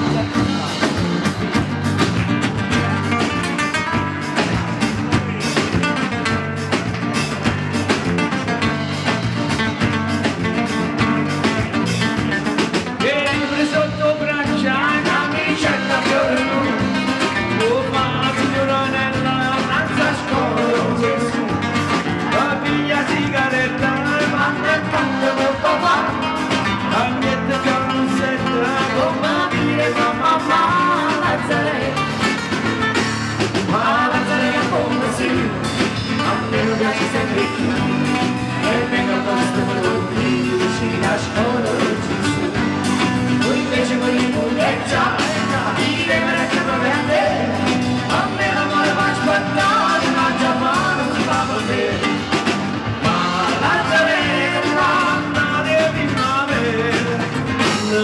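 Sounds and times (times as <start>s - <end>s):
acoustic guitars: 0.0s - 58.0s
drum kit: 0.0s - 58.0s
person singing: 13.0s - 32.4s, 33.5s - 58.0s.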